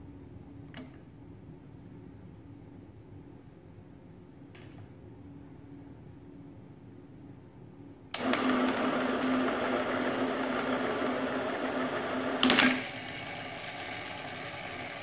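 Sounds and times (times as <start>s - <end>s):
pipe cutter motor humming: 8.2s - 15.0s.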